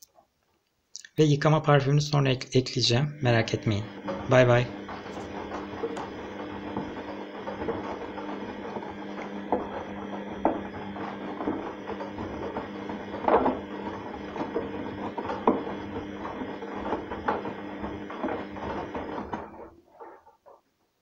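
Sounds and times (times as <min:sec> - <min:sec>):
washing machine motor hum: 0:01.2 - 0:20.5.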